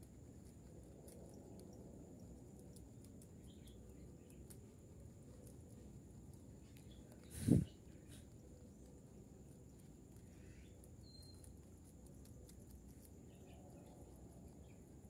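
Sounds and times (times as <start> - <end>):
soft ticks: 1.0 - 7.3.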